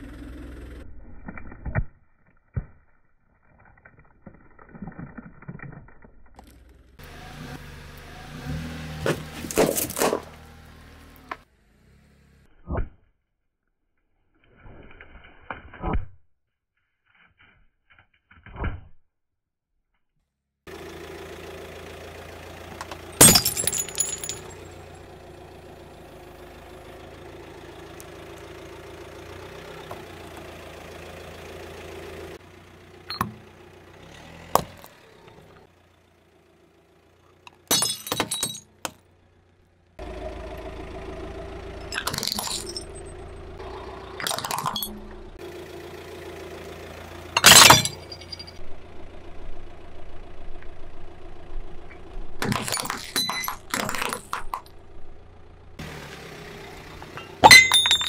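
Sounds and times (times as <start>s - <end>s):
car engine hum: 0.0s - 1.0s, 6.4s - 12.6s, 20.7s - 58.0s
ceramic cups crushing and shattering: 23.2s - 24.7s, 37.5s - 38.7s, 41.9s - 43.0s, 44.2s - 44.9s, 47.4s - 48.6s, 52.4s - 54.7s, 57.2s - 58.0s.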